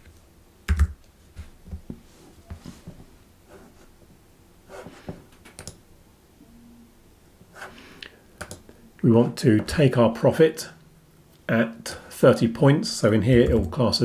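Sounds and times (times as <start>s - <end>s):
computer mouse clicking: 5.4s - 5.8s, 8.4s - 8.6s.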